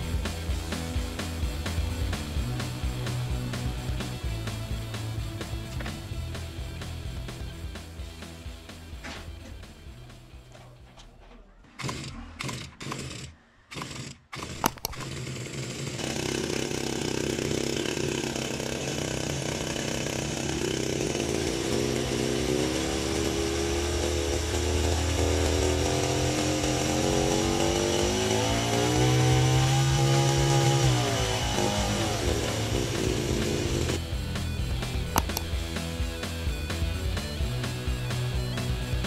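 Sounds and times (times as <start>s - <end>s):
recoil starter pulls: 10.5s - 27.7s, 35.0s - 35.6s
hedge trimmer engine running: 11.8s - 38.9s.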